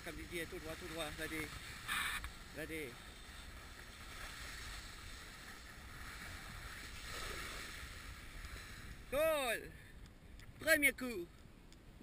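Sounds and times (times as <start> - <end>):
snowboard scraping over snow: 0.0 - 9.0.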